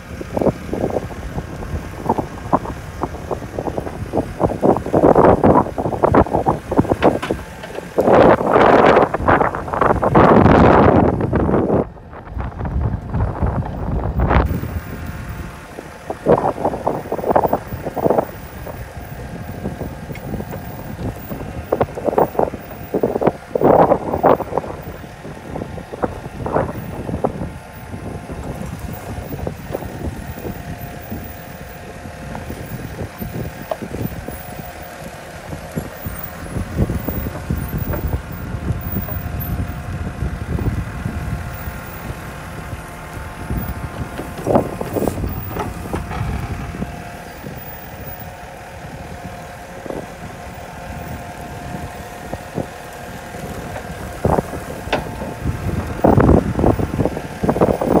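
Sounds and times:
diesel engine under load: 0.0s - 58.0s
wind on microphone: 0.0s - 58.0s
hydraulic whine: 0.2s - 58.0s
bucket clunks and scrapes: 44.2s - 46.3s.

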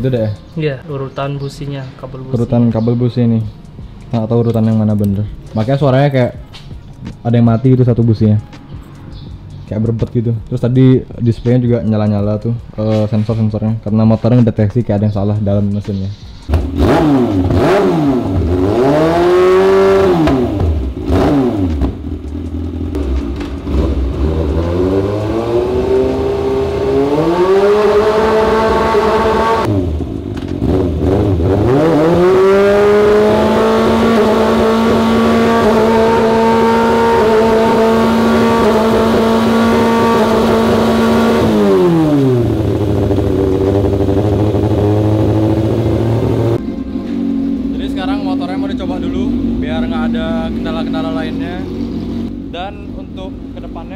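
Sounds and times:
motorcycle engine revving roughly: 16.5s - 53.0s.

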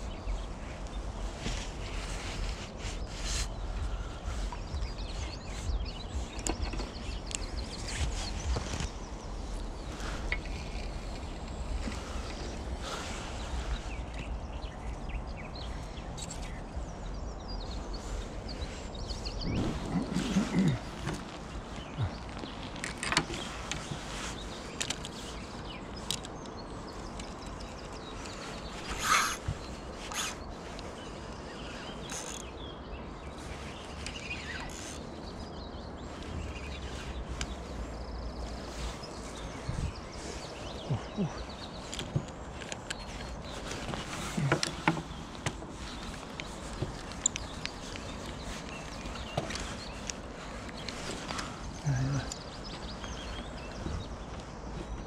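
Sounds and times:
low microphone rumble: 0.0s - 22.7s
hands rustling fishing gear: 0.0s - 32.6s, 33.4s - 55.0s
faint outdoor background: 0.0s - 55.0s
small birds chirping: 0.0s - 55.0s.

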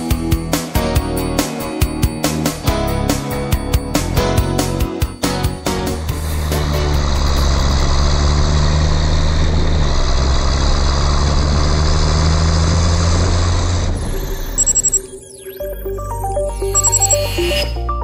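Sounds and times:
diesel tractor engine running: 2.6s - 15.1s.

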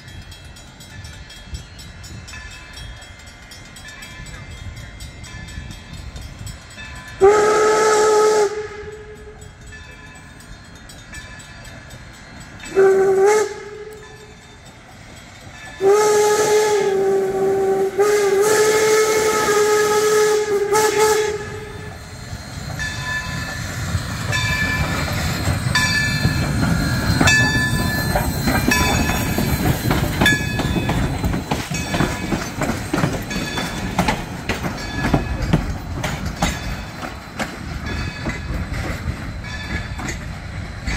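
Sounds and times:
train rumbling past: 0.0s - 40.9s
wheels clanking on rails: 0.0s - 40.9s
steam whistle blasts: 7.2s - 9.4s, 12.7s - 14.3s, 15.8s - 23.4s.

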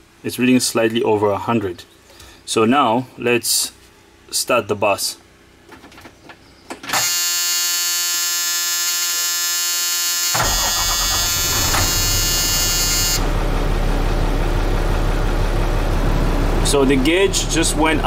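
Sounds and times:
starter motor whining: 10.3s - 13.8s
diesel engine idling: 10.4s - 18.0s.

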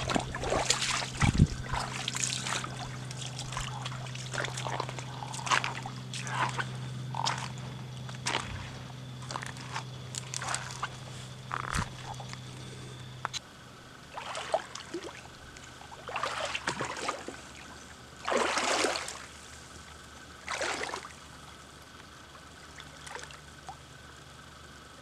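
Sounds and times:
splashing steps in shallow water: 0.0s - 12.5s, 14.1s - 15.2s, 16.0s - 17.4s, 18.2s - 19.3s, 20.5s - 21.1s.

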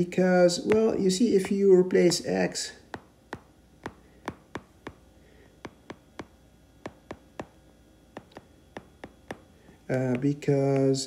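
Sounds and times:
stylus tapping on glass screen: 0.7s - 2.3s, 2.9s - 7.6s, 8.2s - 11.0s.

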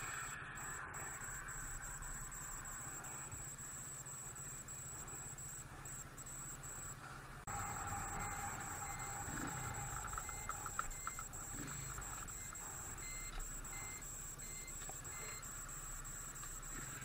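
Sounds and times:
faint high-pitched whine: 0.0s - 17.0s
muffled motorcycle engine running: 7.5s - 13.0s.

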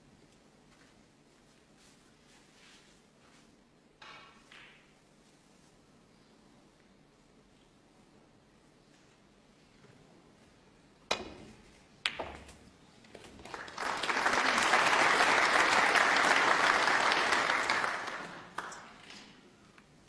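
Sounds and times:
audience applauding: 13.4s - 19.0s.

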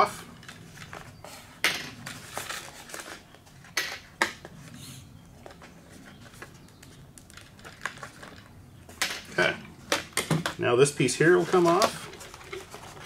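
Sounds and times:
handling rustle: 0.4s - 3.8s, 11.0s - 13.0s.

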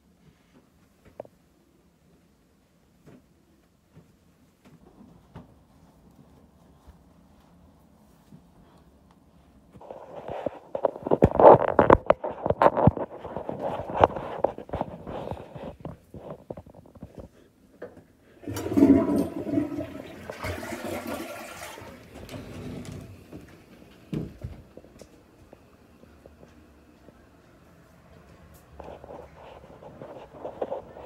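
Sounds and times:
toilet flushing: 18.4s - 24.5s.

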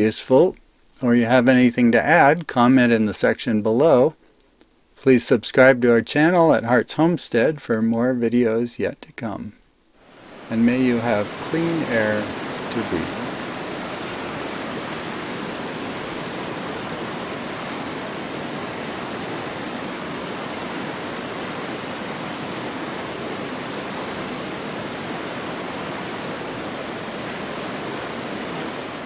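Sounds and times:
river rushing over rocks: 10.0s - 29.0s.

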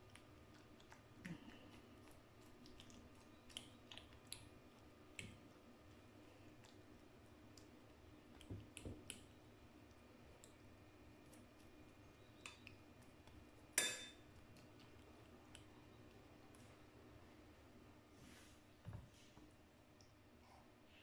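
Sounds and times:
fork clinking ceramic bowl: 13.8s - 14.2s.

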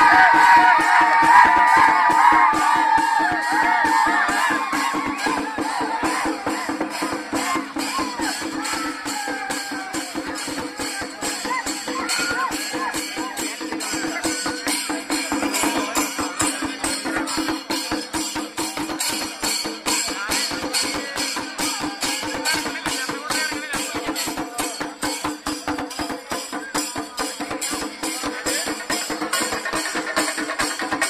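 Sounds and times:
crowd shouting: 0.0s - 14.1s
drums and cymbals playing: 0.0s - 31.0s.

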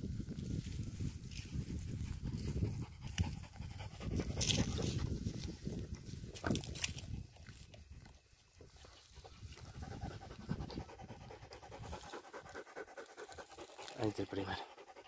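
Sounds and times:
dog panting: 2.1s - 5.2s, 8.9s - 15.0s.

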